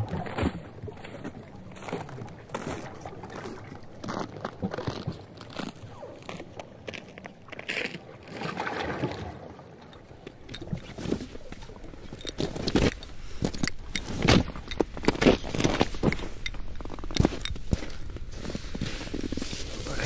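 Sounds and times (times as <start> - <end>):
soft irregular rustling: 10.8 - 20.0
footsteps crunching in snow: 12.4 - 20.0.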